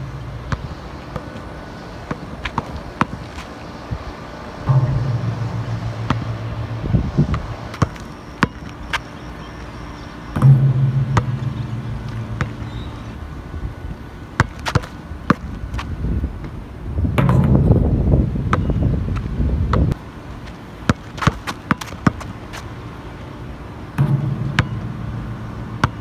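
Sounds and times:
basketball bouncing on asphalt: 0:00.0 - 0:13.3, 0:14.2 - 0:22.7, 0:24.0 - 0:26.0
low steady hum: 0:00.0 - 0:20.9, 0:22.2 - 0:26.0
wind noise on microphone: 0:02.7 - 0:08.0, 0:11.3 - 0:14.2, 0:15.2 - 0:20.0.

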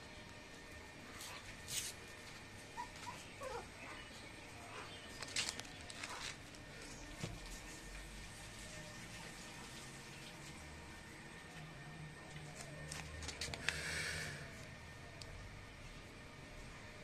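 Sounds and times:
puppies whimpering: 0:02.7 - 0:05.2
puppies squeaking: 0:02.8 - 0:04.1
puppies scuffling: 0:04.7 - 0:07.8.

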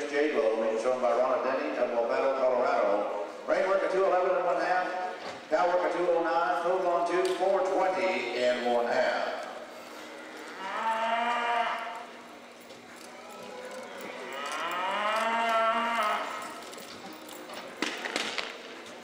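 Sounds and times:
cattle mooing: 0:09.9 - 0:12.2, 0:13.2 - 0:16.6.

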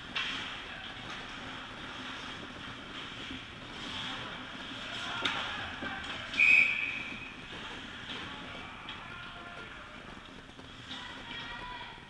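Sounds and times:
hockey sticks working: 0:00.0 - 0:12.0
skates scraping ice: 0:00.0 - 0:12.0
referee's whistle: 0:06.3 - 0:07.3.

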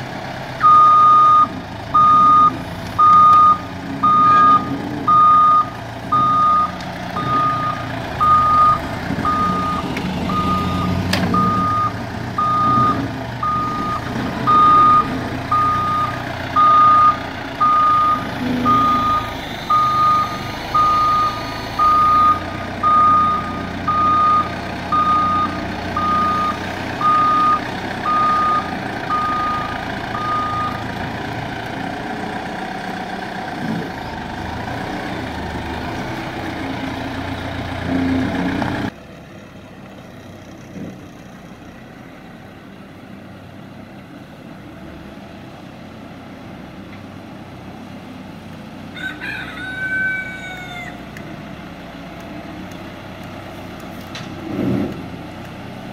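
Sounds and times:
diesel engine running: 0:00.0 - 0:55.9
reversing alarm beeps: 0:00.6 - 0:30.9
rooster crowing: 0:48.9 - 0:51.1.

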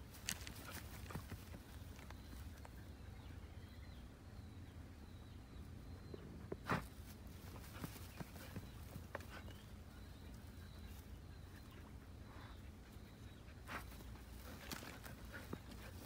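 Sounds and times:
dry grass rustling: 0:00.0 - 0:03.0, 0:06.6 - 0:11.8, 0:13.6 - 0:16.0.

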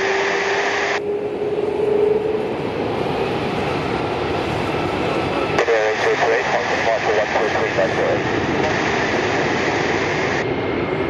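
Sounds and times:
jet engine rushing: 0:00.0 - 0:11.0
radio hiss: 0:05.6 - 0:10.4.

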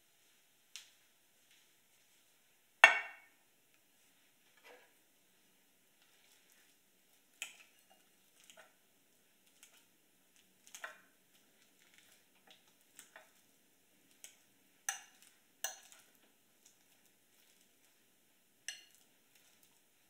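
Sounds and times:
fork mashing bananas: 0:05.9 - 0:20.0
fork clinking against glass bowl: 0:14.9 - 0:16.1, 0:18.7 - 0:19.0.

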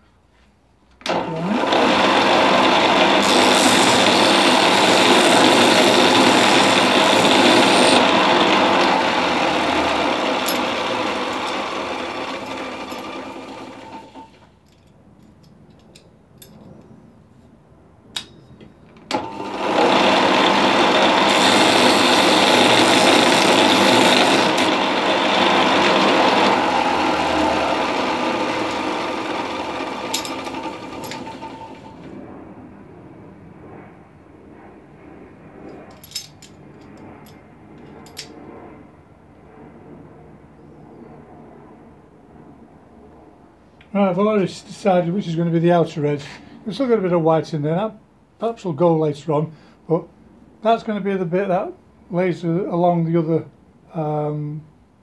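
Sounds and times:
bench sander grinding: 0:01.1 - 0:14.4, 0:19.1 - 0:32.1.

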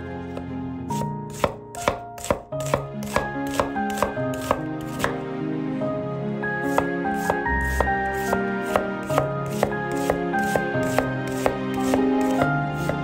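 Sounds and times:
soft background music: 0:00.0 - 0:13.0
knife chopping on cutting board: 0:00.4 - 0:05.2, 0:06.7 - 0:13.0.

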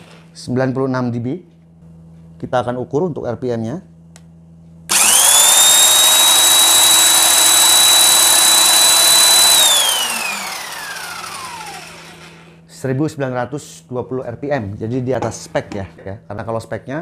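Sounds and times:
impact wrench motor whining: 0:04.9 - 0:12.6.

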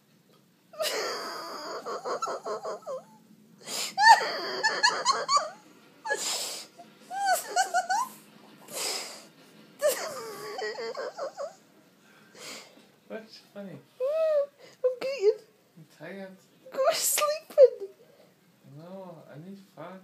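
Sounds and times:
high-pitched laughter: 0:00.8 - 0:03.2, 0:03.9 - 0:06.3, 0:07.1 - 0:08.2, 0:09.8 - 0:11.6
gasping wheezy breaths: 0:08.7 - 0:09.3, 0:12.0 - 0:12.9.

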